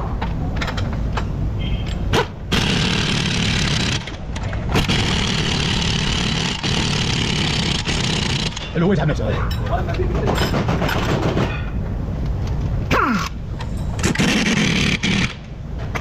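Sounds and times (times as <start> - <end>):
impact wrench running: 2.5 - 8.6, 14.0 - 15.5.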